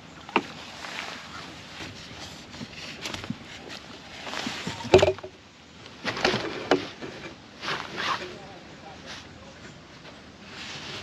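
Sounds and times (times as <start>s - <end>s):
fish and landing net rustling: 0.0s - 8.4s.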